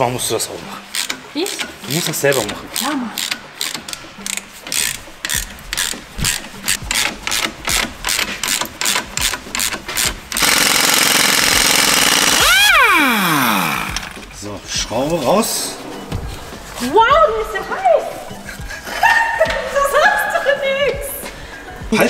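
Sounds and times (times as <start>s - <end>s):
ratchet clicking: 0.9s - 14.3s
impact wrench hammering: 0.9s - 14.4s.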